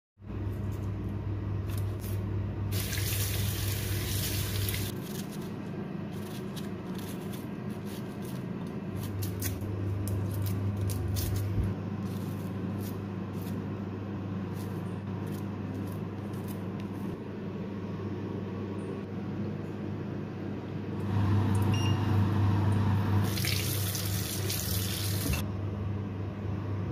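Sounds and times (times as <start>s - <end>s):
steady low hum: 0.2s - 2.8s, 3.4s - 23.3s, 25.0s - 26.9s
running tap water: 2.7s - 4.9s, 23.2s - 25.4s.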